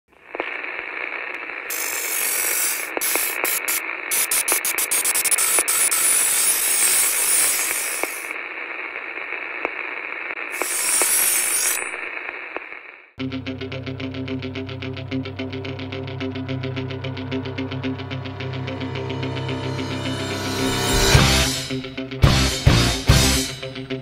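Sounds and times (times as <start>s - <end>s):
crackling noise bursts: 0.1s - 13.2s
electronic static hiss: 0.2s - 13.2s
scattered clicks: 1.3s - 8.3s.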